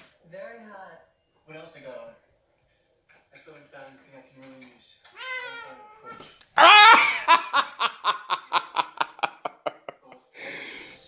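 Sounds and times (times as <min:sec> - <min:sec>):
person crying out: 0:06.6 - 0:07.5
person laughing: 0:06.6 - 0:10.2.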